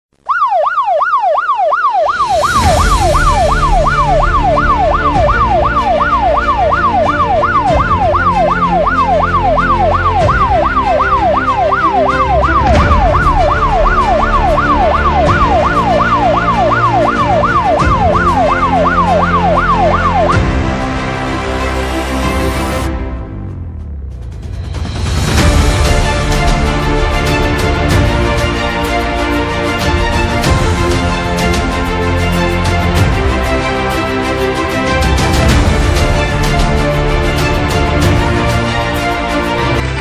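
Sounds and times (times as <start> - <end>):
electronic yelp siren: 0.2 - 20.6
music: 2.2 - 40.0.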